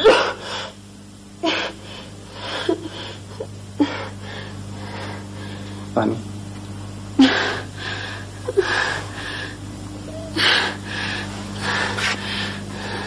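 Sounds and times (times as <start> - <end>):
low electrical hum: 0.0 - 13.0
woman sobbing: 2.4 - 4.2, 8.4 - 9.1, 10.1 - 10.8.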